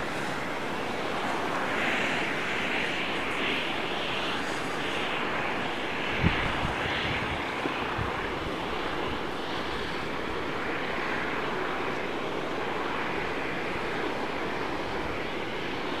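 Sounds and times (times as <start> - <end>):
wind on microphone: 0.0 - 11.9.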